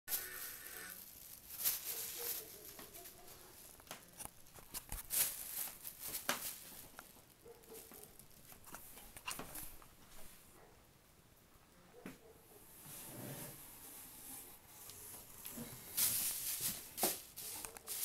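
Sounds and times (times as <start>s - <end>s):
plastic bag crinkling: 0.1s - 10.0s, 15.5s - 18.0s
paws scrabbling on wooden floor: 1.5s - 10.4s, 15.4s - 18.0s.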